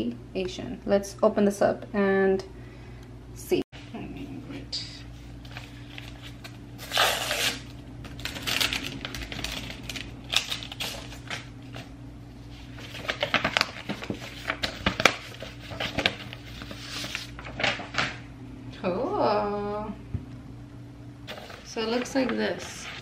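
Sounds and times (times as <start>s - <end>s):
paper rustling and crackling: 5.4s - 11.9s, 12.5s - 18.2s, 21.3s - 23.0s
envelope ripping open: 5.9s - 11.8s.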